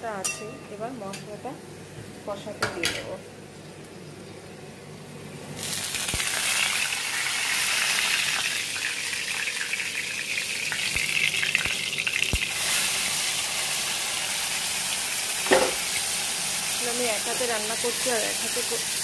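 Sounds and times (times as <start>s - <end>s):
seeds sizzling in hot oil: 5.6s - 19.0s
utensil knocking on pan: 15.4s - 15.8s.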